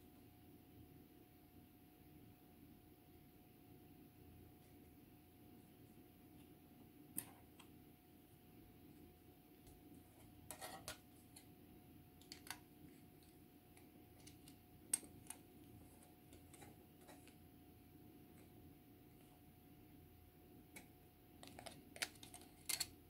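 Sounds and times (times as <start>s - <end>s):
faint steady hum: 0.0s - 23.0s
plastic parts clicking: 12.2s - 12.6s, 13.8s - 15.5s, 21.4s - 23.0s.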